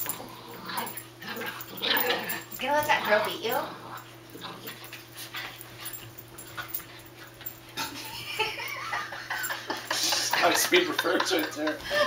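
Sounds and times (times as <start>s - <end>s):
dogs high wavering vocalizations: 0.0s - 9.6s.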